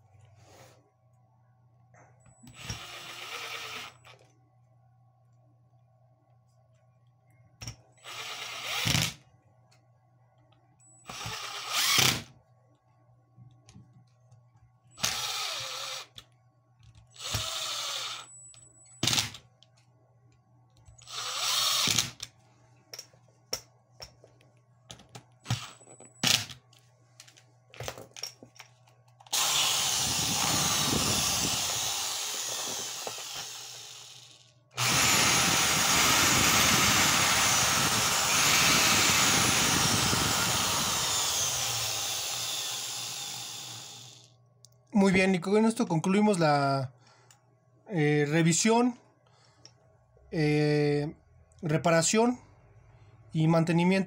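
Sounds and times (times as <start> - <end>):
cordless driver bursts: 2.5 - 4.1, 11.0 - 12.2, 17.2 - 18.3, 29.3 - 44.3
hammer drill motor running: 2.5 - 4.2, 8.0 - 9.2, 11.0 - 12.2, 15.0 - 16.2, 17.2 - 18.4, 21.0 - 22.2, 29.3 - 44.3.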